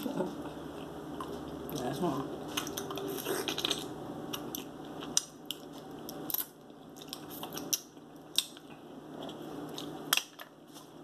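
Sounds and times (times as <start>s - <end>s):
mouth eating sounds: 2.5s - 6.2s.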